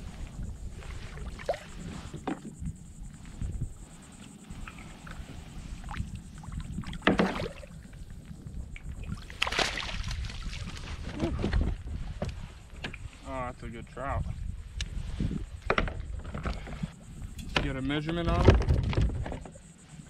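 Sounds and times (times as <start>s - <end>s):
water sloshing against hull: 0.0s - 13.3s, 14.3s - 20.0s
fish splashing and thrashing: 5.8s - 8.0s, 8.9s - 12.0s.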